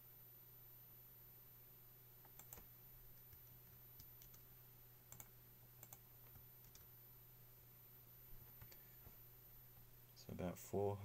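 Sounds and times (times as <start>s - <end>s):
low steady hum: 0.0s - 11.0s
computer mouse clicks: 2.2s - 4.4s, 5.1s - 6.9s, 8.6s - 8.9s.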